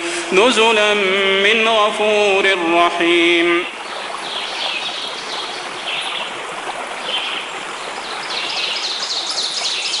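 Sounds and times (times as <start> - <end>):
flowing water: 0.0 - 10.0
birds twittering: 3.6 - 10.0.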